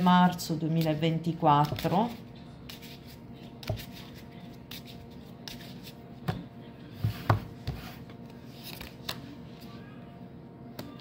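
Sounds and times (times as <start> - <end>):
cards being shuffled: 8.3 - 9.7.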